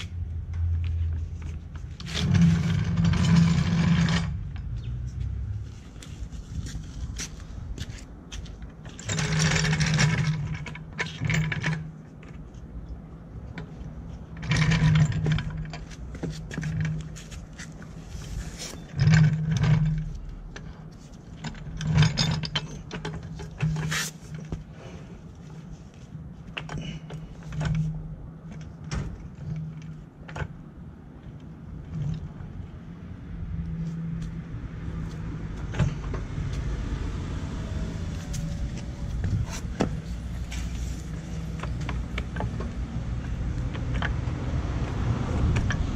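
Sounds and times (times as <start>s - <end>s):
metal scraping: 0.0s - 7.6s
floor jack casters rumbling: 0.0s - 25.7s, 26.4s - 32.7s, 33.6s - 45.9s
metal clanks and clicks: 8.6s - 12.7s, 13.4s - 18.0s, 18.6s - 24.7s, 35.0s - 36.3s, 38.2s - 45.9s.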